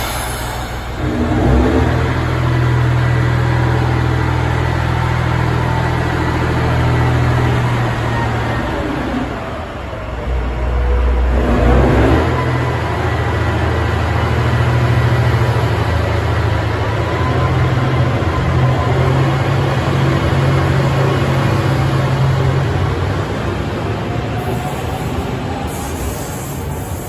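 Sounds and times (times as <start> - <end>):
diesel railcar engine drone: 0.0 - 27.0.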